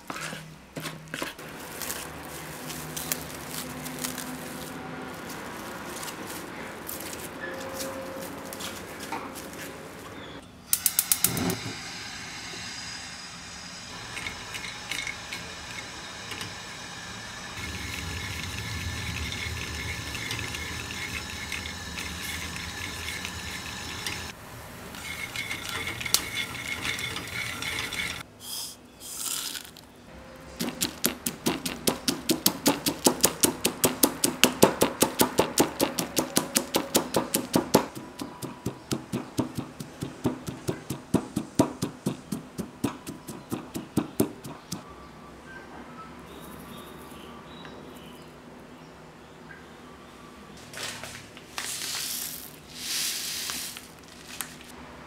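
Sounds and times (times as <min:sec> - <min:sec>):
peanuts roasting in a frying pan: 0:01.4 - 0:07.3, 0:13.9 - 0:28.3, 0:51.6 - 0:54.8
mortar and pestle pounding: 0:30.6 - 0:44.8.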